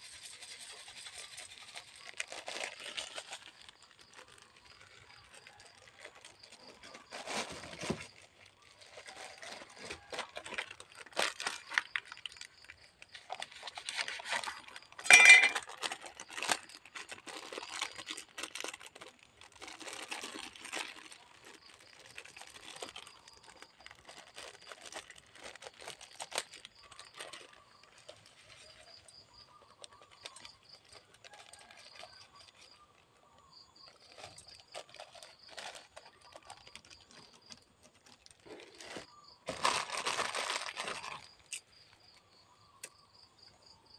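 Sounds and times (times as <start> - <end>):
plastic bags crinkling: 0.0 - 42.2
sharp clatter: 15.0 - 15.7.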